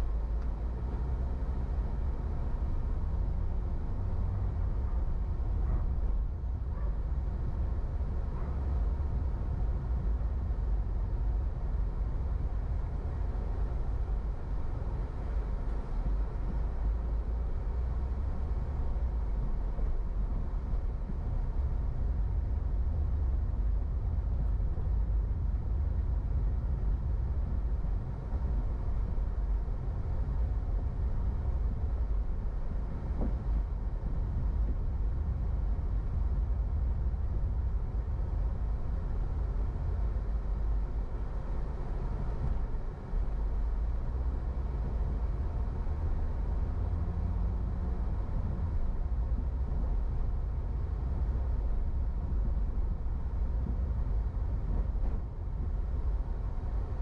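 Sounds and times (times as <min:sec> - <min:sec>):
car engine and road noise: 0:00.0 - 0:57.0.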